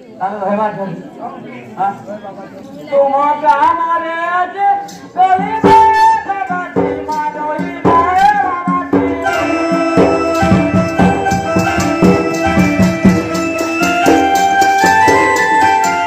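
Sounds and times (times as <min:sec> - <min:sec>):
person singing over drums: 0:03.4 - 0:16.0
fast drum beat: 0:05.4 - 0:16.0
electronic organ chords: 0:08.9 - 0:16.0.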